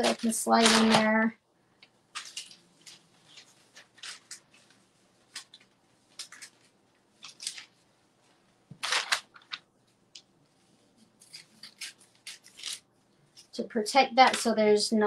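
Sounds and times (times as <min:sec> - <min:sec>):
paper rustling and crinkling: 0:00.0 - 0:01.3, 0:02.1 - 0:07.8, 0:08.7 - 0:09.7, 0:10.7 - 0:13.6.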